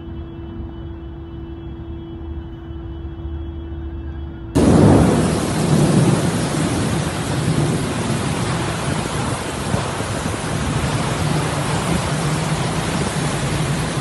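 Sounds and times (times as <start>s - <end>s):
heavy rain: 4.6s - 14.0s
low rumble: 4.6s - 14.0s.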